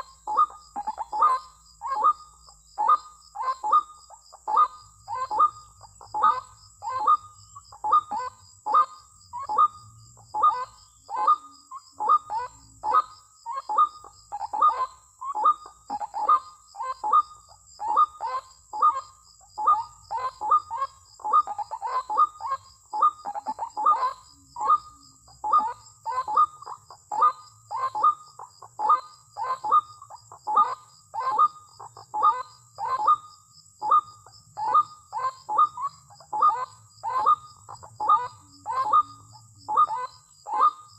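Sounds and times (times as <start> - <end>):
waterhen harsh ruak call: 19.6 - 40.9.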